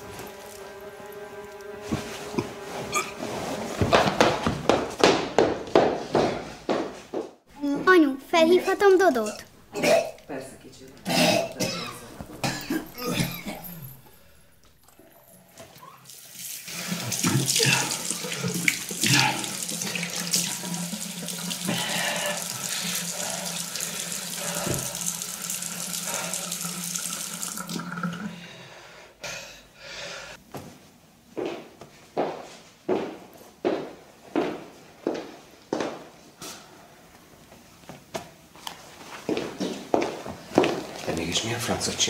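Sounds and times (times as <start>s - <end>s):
tap water running into sink: 16.1s - 28.3s.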